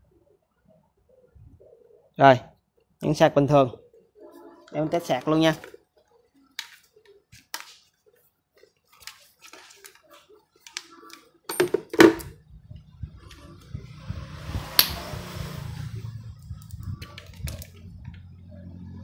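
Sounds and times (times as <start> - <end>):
sharp click: 14.8 - 15.0.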